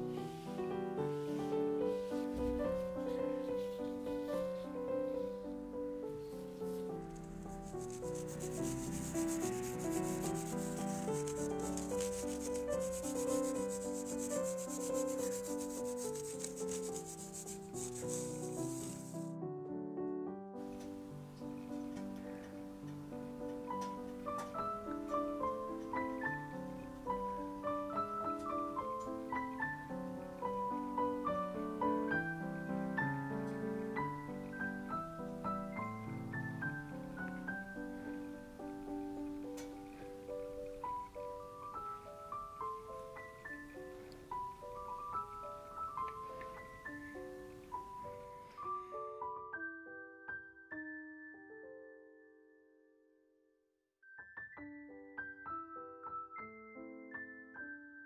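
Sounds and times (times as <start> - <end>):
soft melodic background music: 0.0 - 53.1, 54.0 - 58.0
sieve rasping: 7.1 - 19.3.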